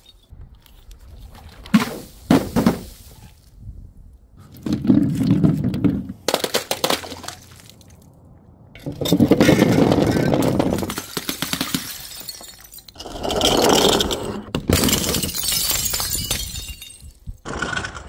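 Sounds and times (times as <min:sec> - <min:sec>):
glass bottles smashing: 0:08.9 - 0:13.6, 0:14.7 - 0:17.4.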